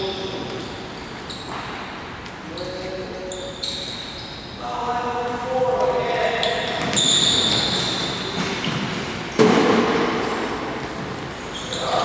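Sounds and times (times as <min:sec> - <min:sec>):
sneaker squeaks: 0:00.0 - 0:04.8, 0:06.1 - 0:12.0
loud thud ringing in hall: 0:09.4 - 0:10.2.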